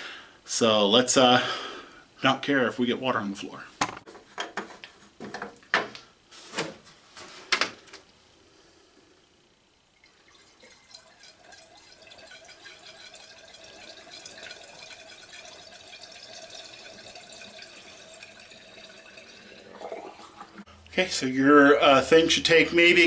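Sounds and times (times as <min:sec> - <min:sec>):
water pouring from jug: 0:10.0 - 0:20.7.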